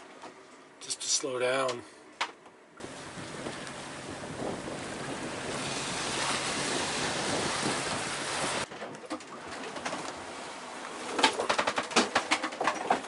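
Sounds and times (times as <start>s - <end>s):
wind and breaking sea rushing: 2.8s - 11.7s.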